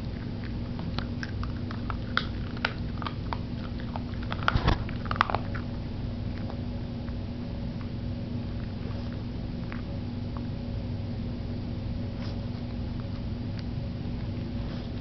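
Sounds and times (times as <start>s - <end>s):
puppy chewing rubber toy: 0.0s - 10.6s.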